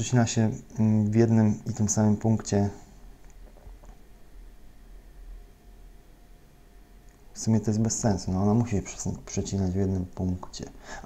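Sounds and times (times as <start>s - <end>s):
low hum and hiss: 0.0s - 11.0s.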